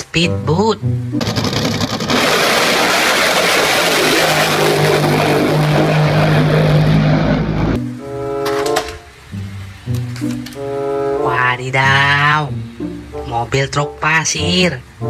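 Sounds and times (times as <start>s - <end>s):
powerboat engine at high speed: 1.2s - 7.8s.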